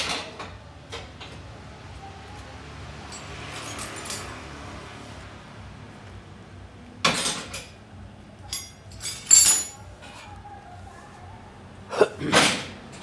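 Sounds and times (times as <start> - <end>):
metal parts clinking: 8.4 - 9.8.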